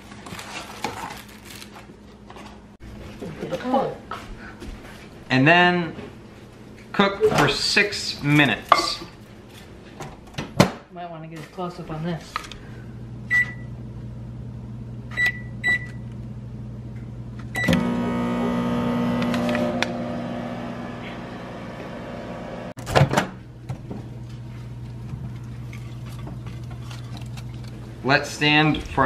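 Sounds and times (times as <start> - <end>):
microwave oven humming: 12.6 - 28.1
microwave keypad beeping: 13.3 - 13.7, 15.1 - 16.0.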